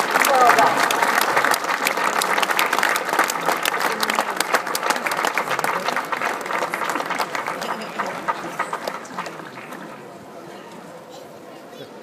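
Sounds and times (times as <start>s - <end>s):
crowd applauding: 0.0s - 10.2s.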